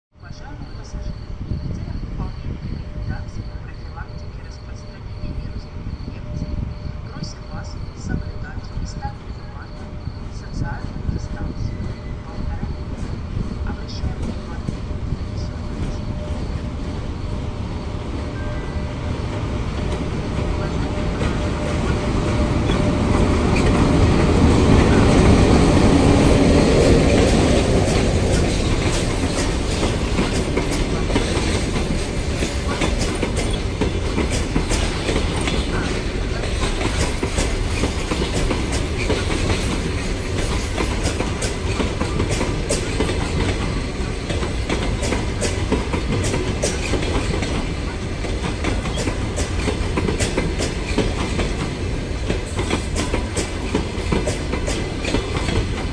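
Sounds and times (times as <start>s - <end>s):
electric locomotive passing: 0.2s - 55.9s
wheel and rail noise: 4.2s - 55.9s
wheels clacking over rail joints: 19.3s - 55.9s.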